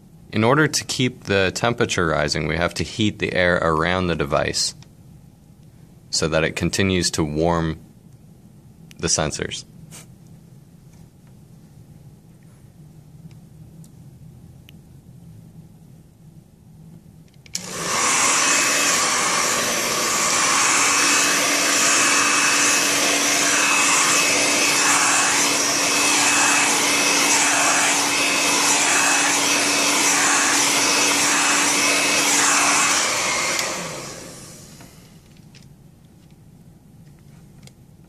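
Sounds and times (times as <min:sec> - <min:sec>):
hair dryer blowing: 0:17.6 - 0:35.2.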